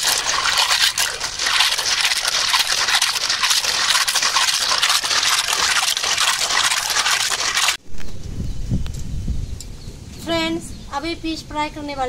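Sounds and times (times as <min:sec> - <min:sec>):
snail shells clattering and scraping: 0:00.0 - 0:07.8
water sloshing and splashing: 0:00.0 - 0:07.8.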